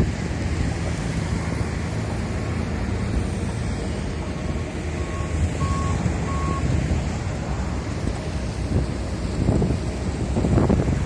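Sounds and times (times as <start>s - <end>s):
road traffic rumble: 0.0s - 11.0s
vehicle reversing alarm beeping: 4.2s - 6.7s.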